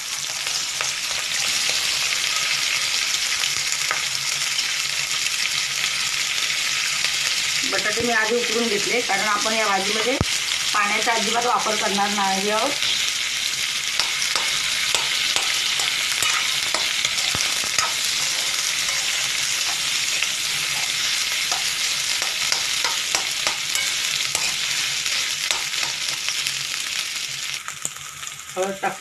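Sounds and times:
food sizzling in oil: 0.0 - 29.0
steel spoon scraping a pan: 14.0 - 26.4.

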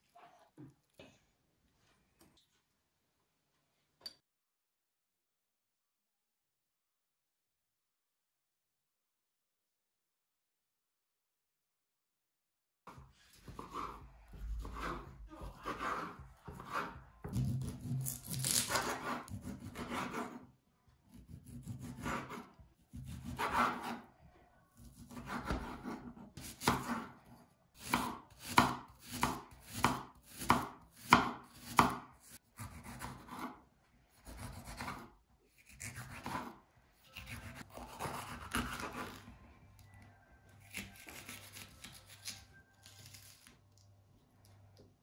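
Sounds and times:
knife cutting on wooden board: 12.9 - 20.4, 21.1 - 24.0, 27.8 - 33.6, 34.2 - 39.2.

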